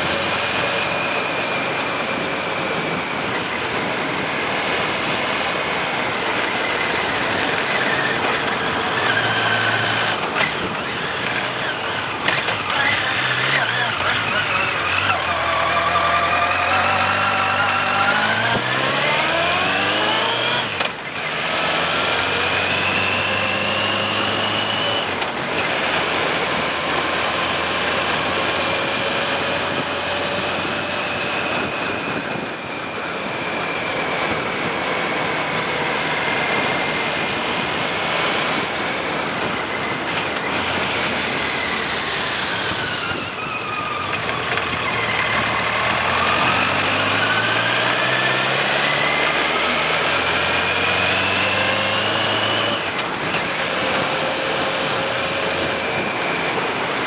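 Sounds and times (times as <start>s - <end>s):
wind noise: 0.0s - 13.5s, 28.2s - 49.8s
motorcycle engine revving: 0.0s - 57.0s.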